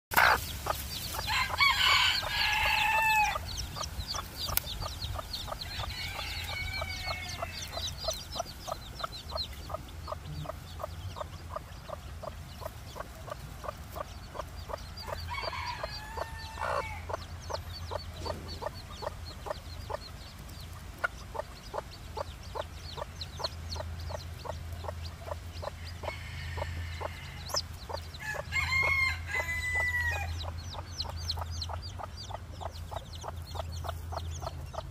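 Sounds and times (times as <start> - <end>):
chicken calling: 0.1 - 3.5
chicks peeping: 0.1 - 34.9.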